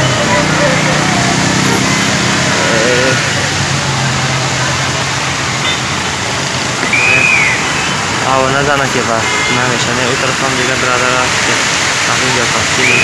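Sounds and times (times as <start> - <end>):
fountain water splashing: 0.0 - 13.0
high whistle-like tone: 6.8 - 8.0.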